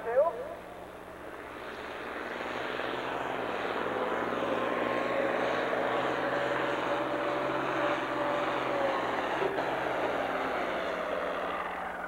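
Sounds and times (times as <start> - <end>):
faint steady whine: 0.0 - 12.0
tractor diesel engine under load: 1.2 - 12.0.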